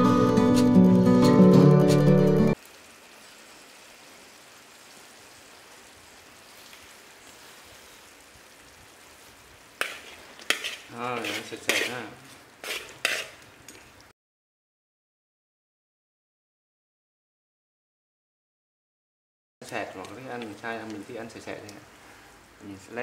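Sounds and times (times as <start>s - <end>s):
meat sizzling in a pan: 2.6s - 14.1s, 19.6s - 23.0s
utensil scraping and clinking on pan: 9.8s - 13.4s.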